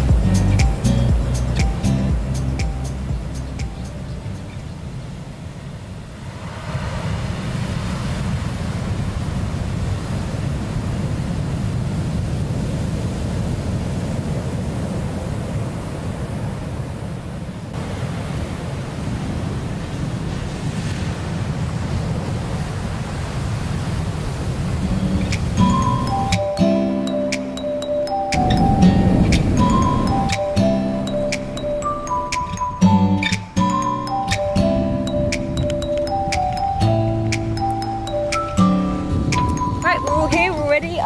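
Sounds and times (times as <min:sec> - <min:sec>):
wind rumbling on microphone: 0:00.0 - 0:26.3, 0:28.4 - 0:30.7, 0:38.8 - 0:41.0
surf breaking on pebble beach: 0:06.2 - 0:15.4, 0:17.7 - 0:25.2.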